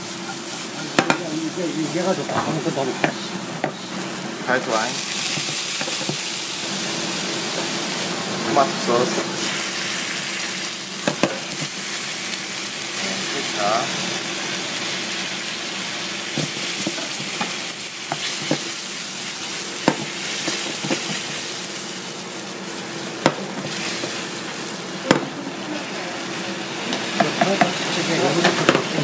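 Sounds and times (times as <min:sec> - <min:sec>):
sauce sizzling in a frying pan: 0:00.0 - 0:29.0
spatula knocking against pan: 0:19.8 - 0:21.2.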